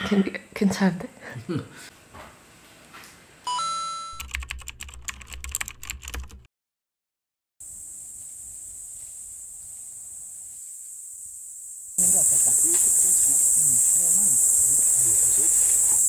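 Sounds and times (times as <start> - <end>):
chime: 3.5 - 4.2
keyboard typing clicks: 4.1 - 6.5
high insect drone: 7.6 - 16.0.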